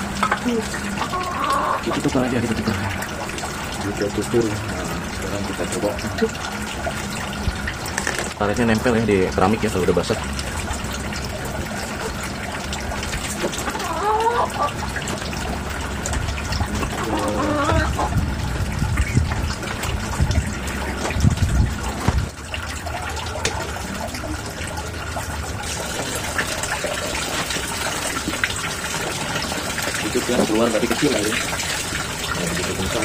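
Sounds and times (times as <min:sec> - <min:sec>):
water splashing into a pond: 0:09.2 - 0:33.0.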